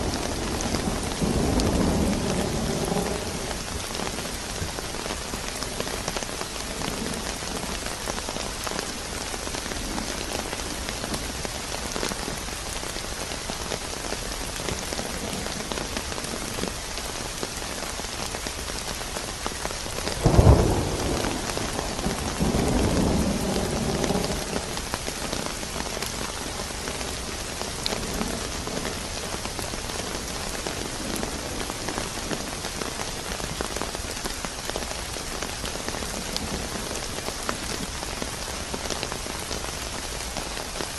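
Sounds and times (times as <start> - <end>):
thunder rumbling: 0.0 - 12.4, 19.9 - 34.1
steady rain falling: 0.0 - 40.9
thunder crack: 20.2 - 24.8.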